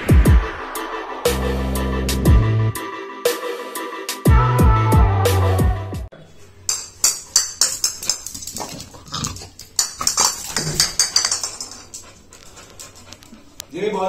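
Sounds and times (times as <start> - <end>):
dog claws clicking on floor: 6.7 - 13.7.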